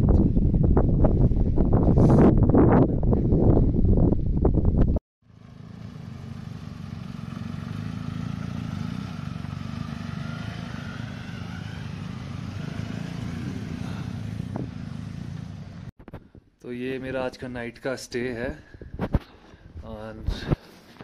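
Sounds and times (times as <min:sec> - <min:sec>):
wind buffeting microphone: 0:00.0 - 0:05.0, 0:12.1 - 0:15.0, 0:18.7 - 0:20.6
motorcycle engines rumbling: 0:05.3 - 0:15.9.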